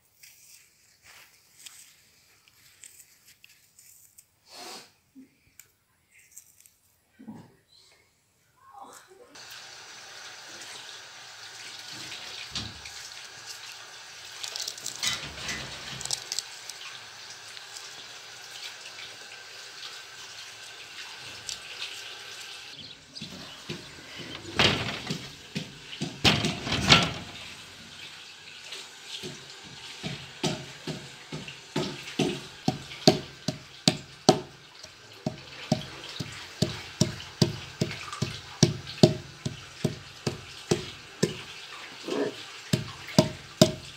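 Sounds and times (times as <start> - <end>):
pestle knocking on wooden board: 29.3 - 34.5, 35.2 - 41.5, 42.7 - 43.9.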